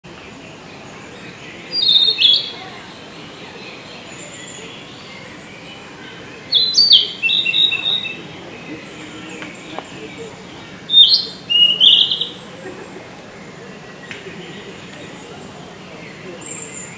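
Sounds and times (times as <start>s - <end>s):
bird singing clear notes: 0.6s - 12.8s.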